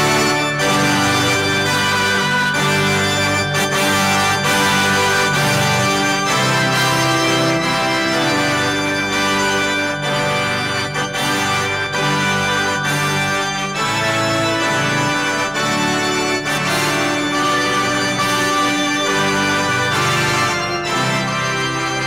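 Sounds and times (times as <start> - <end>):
electronic keyboard chords: 0.0 - 22.0.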